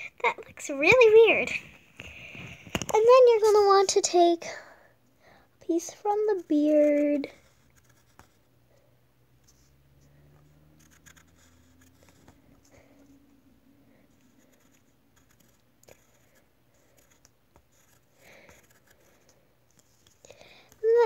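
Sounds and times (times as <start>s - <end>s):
pencil scratching on paper: 6.0s - 8.4s, 10.4s - 12.5s, 14.1s - 20.1s.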